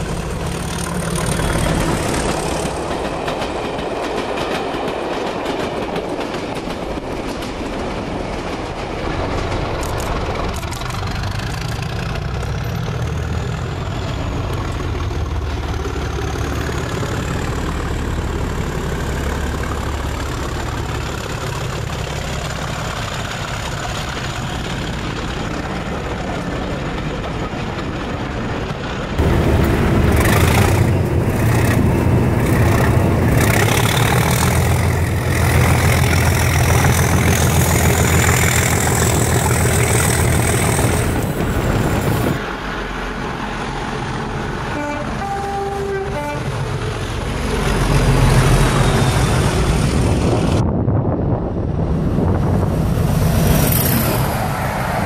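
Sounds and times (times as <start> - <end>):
diesel locomotive engine working hard: 0.0 - 55.0
train horn toots: 44.7 - 46.9.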